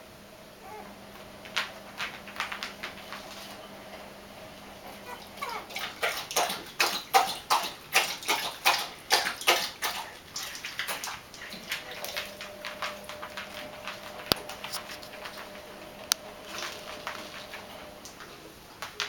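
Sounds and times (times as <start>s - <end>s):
puppies squeaking: 4.8s - 5.8s.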